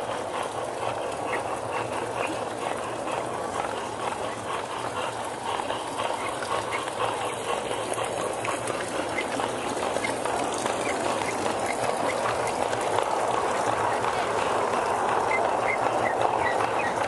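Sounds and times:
model train wheels rumbling: 0:00.0 - 0:17.0.

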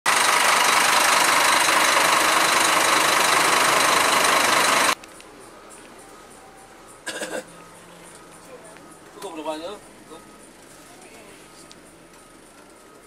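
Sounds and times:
diesel engine idling: 0:00.1 - 0:05.6.

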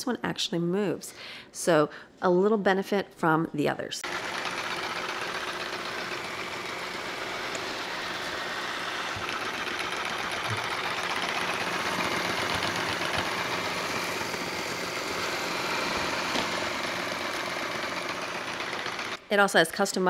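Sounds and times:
robot vacuum motor whirring: 0:04.0 - 0:19.2.

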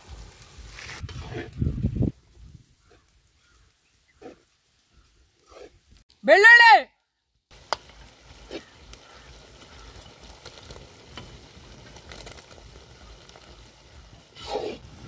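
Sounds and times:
onion and garlic sizzling in oil: 0:00.0 - 0:06.0, 0:07.5 - 0:15.0.

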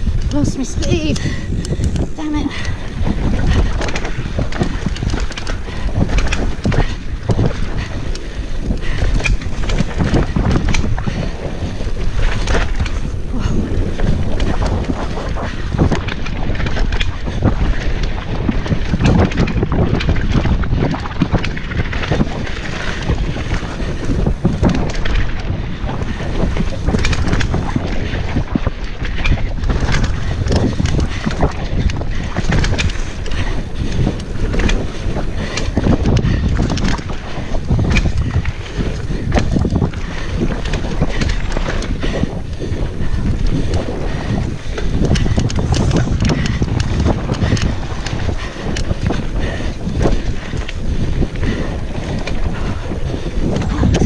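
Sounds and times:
mountain bike rumbling downhill: 0:00.0 - 0:54.0
wind buffeting microphone: 0:00.0 - 0:54.0.

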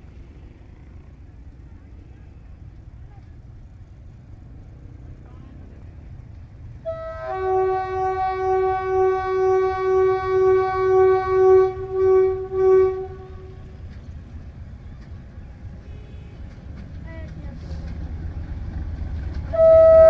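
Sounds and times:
low rumble of train: 0:00.0 - 0:20.0
locomotive air horn blast: 0:06.8 - 0:13.8, 0:19.5 - 0:20.0.

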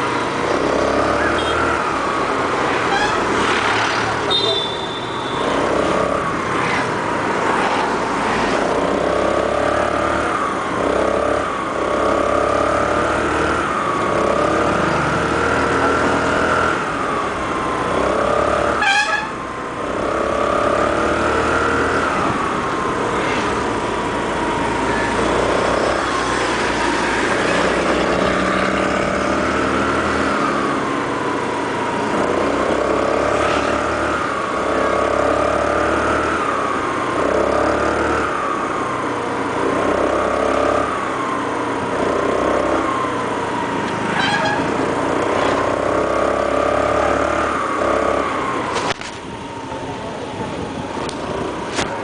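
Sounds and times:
scooter engine whining: 0:00.0 - 0:52.0.

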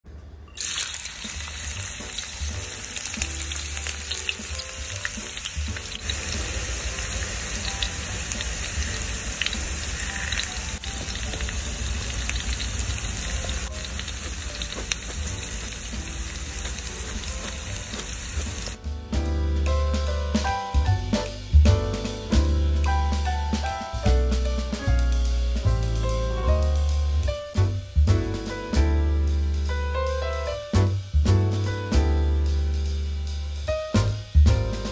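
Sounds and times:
onion sizzling in hot oil: 0:00.6 - 0:19.3.

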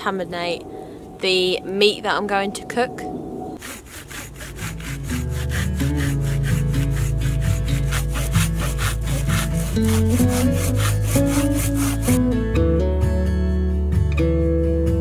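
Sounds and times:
hand saw cutting a log: 0:03.6 - 0:12.2
background music: 0:04.2 - 0:15.0.

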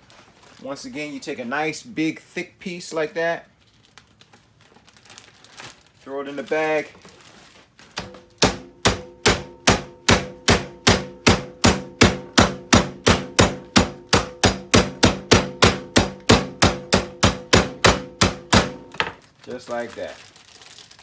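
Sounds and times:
rolling pin pounding meat: 0:08.0 - 0:19.2.

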